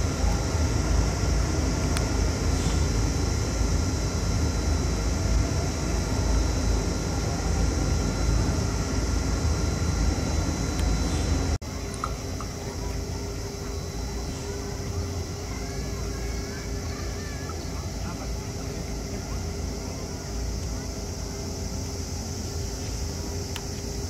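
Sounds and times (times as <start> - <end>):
faint steady tones: 0.0 - 24.0
steady high hiss: 11.1 - 24.0.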